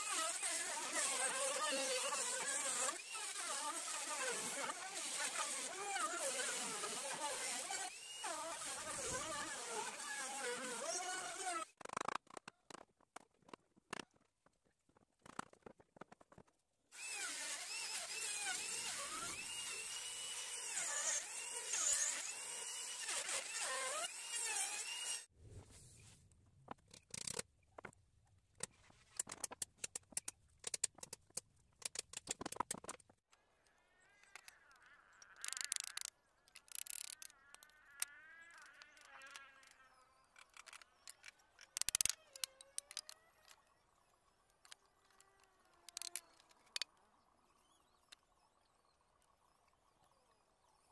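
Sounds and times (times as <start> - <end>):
router whining cutting wood: 0.0 - 11.7, 17.0 - 25.3
wooden pieces knocking: 29.2 - 33.2, 40.6 - 43.2.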